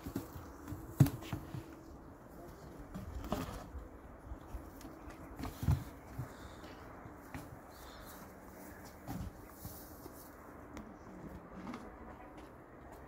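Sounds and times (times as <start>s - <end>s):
rubber tyres thumping: 0.0s - 1.6s.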